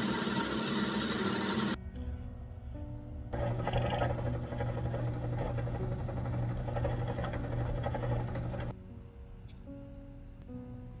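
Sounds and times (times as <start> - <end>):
drill press motor hum: 3.4 - 8.7.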